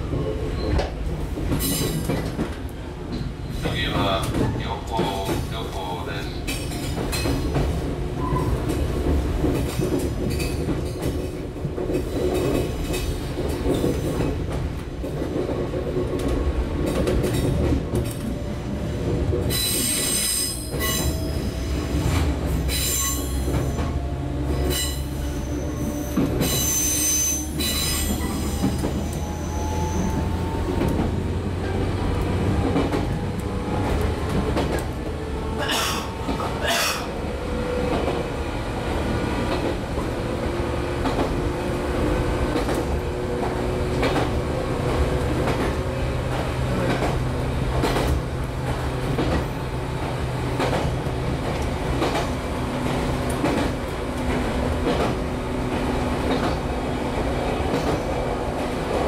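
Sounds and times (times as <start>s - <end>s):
train wheels rumbling on rail: 0.0s - 59.0s
wheel squeal: 24.7s - 30.6s.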